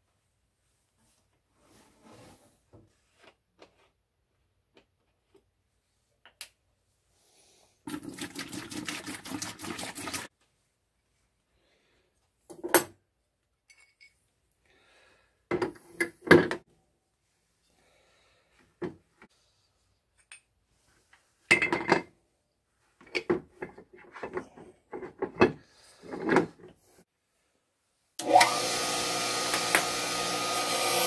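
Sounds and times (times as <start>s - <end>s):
liquid pouring into plastic bucket: 7.9s - 10.3s.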